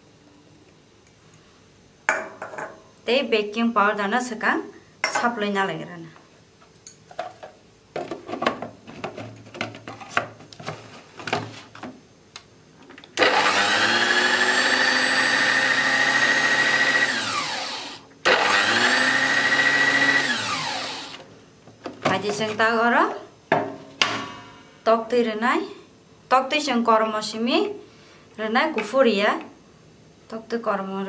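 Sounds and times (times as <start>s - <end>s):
food processor motor whining: 13.2s - 21.2s.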